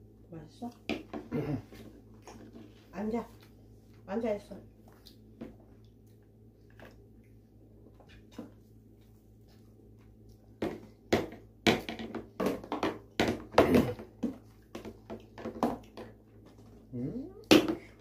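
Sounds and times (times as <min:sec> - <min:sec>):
knocks and clatter at table: 0:00.9 - 0:01.3, 0:10.6 - 0:16.2.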